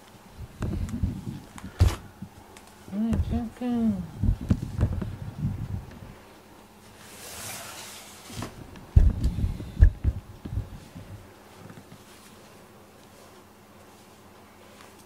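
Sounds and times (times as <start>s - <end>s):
low bumps on camera: 4.2s - 6.1s, 8.3s - 12.4s
fur rustling on microphone: 4.2s - 15.0s.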